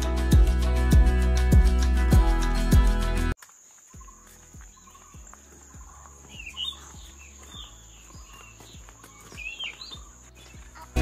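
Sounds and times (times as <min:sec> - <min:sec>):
birds chirping: 0:03.6 - 0:11.0
faint music: 0:03.8 - 0:11.0.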